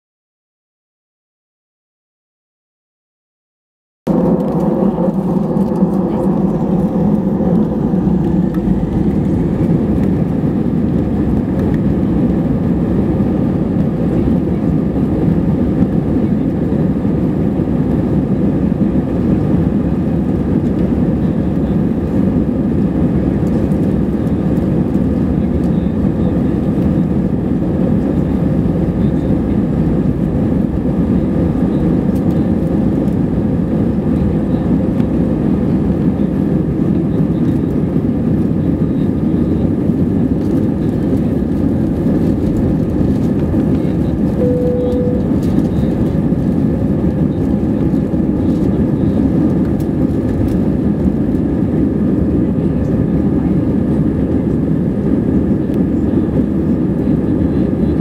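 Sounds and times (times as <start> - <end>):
jet engines humming: 4.1 - 58.0
faint whining tones: 44.4 - 46.2.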